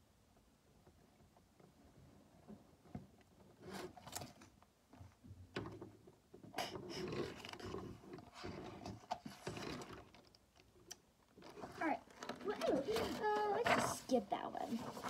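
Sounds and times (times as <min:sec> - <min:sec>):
paper rustling and scraping: 0:11.5 - 0:15.0.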